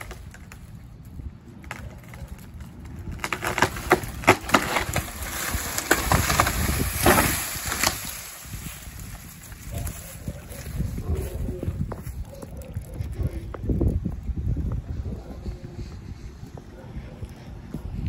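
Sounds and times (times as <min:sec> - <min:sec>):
tree trunk cracking: 0:00.0 - 0:12.9
tree crashing down: 0:01.6 - 0:10.0.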